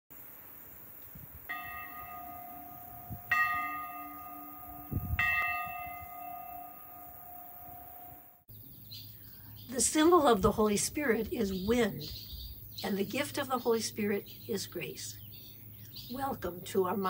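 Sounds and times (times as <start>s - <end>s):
church bell ringing: 1.5s - 8.5s.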